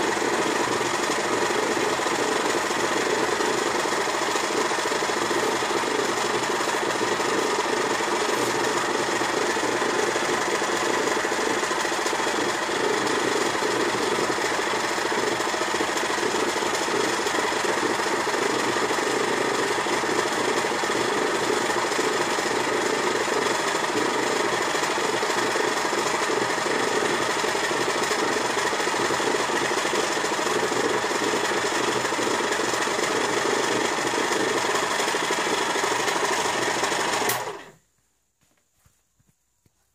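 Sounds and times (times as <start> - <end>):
stand mixer motor running: 0.0 - 37.7.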